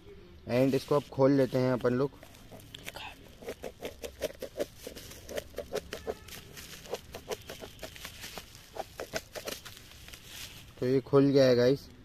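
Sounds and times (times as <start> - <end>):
scissors cutting bubble wrap: 2.4 - 10.3.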